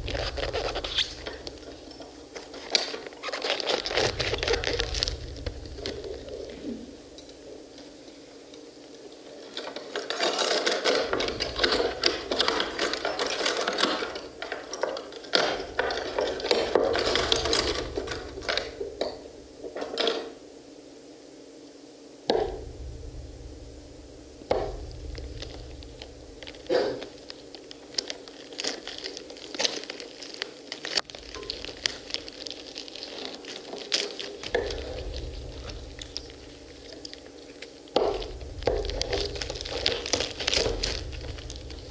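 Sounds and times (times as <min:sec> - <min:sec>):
wet crackling of arils: 0:00.0 - 0:09.3, 0:24.5 - 0:41.9.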